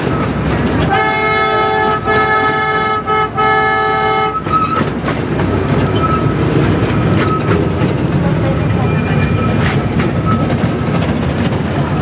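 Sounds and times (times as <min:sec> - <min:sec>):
train running noise: 0:00.0 - 0:12.0
locomotive horn chord: 0:00.8 - 0:04.6.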